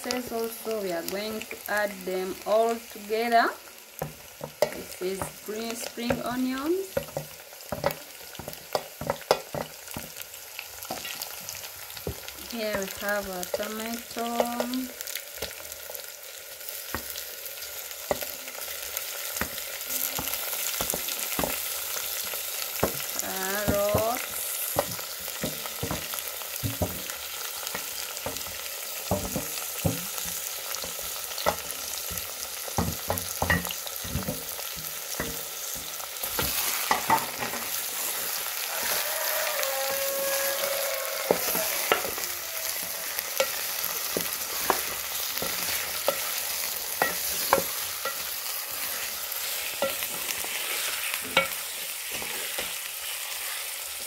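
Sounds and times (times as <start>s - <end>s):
food sizzling in a pan: 0.0s - 54.0s
spoon knocking on pan: 4.0s - 10.2s, 19.4s - 22.1s, 22.8s - 37.6s, 38.8s - 48.8s
spoon scraping and stirring: 35.2s - 53.6s.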